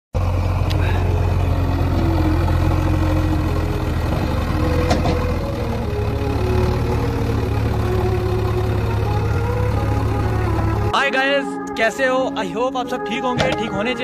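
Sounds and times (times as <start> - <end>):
backhoe diesel engine running: 0.2 - 11.0.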